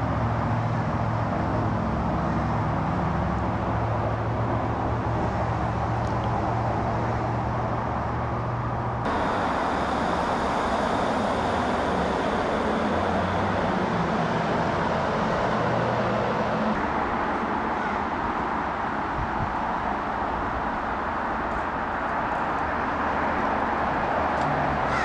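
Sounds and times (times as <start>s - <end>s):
low hum of distant traffic: 0.0s - 25.0s
bright hiss: 9.1s - 16.8s.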